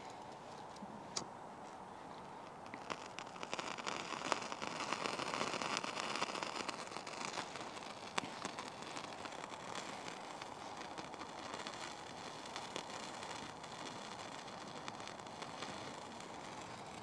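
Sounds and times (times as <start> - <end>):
wet tinder crackling and sizzling: 2.2 - 17.0.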